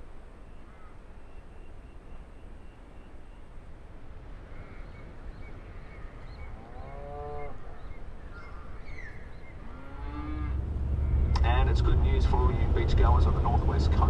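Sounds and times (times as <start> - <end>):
birds chirping: 0.0 - 14.0
low outdoor rumble: 0.0 - 14.0
cow lowing: 6.4 - 7.8, 9.5 - 11.4.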